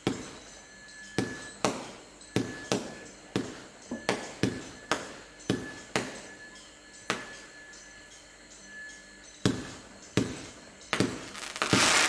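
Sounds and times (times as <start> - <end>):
fireworks popping: 10.2 - 12.0.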